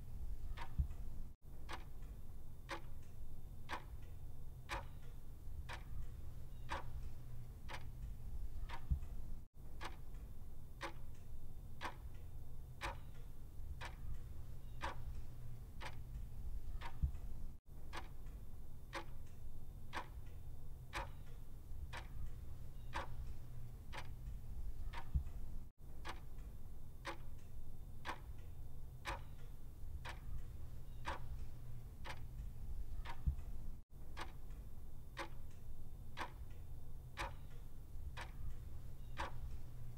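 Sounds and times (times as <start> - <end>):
low steady hum: 0.0 - 39.9
clock ticking: 0.4 - 36.6, 37.2 - 39.9.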